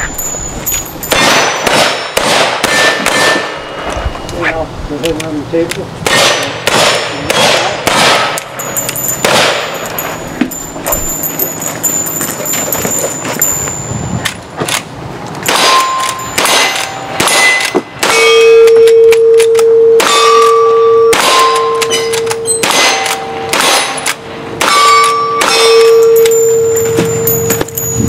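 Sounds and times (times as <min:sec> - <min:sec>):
low metallic ring: 0:00.0 - 0:02.2, 0:08.5 - 0:14.5, 0:15.4 - 0:24.0, 0:24.6 - 0:28.0
steel target clanging: 0:00.0 - 0:04.0, 0:15.4 - 0:28.0.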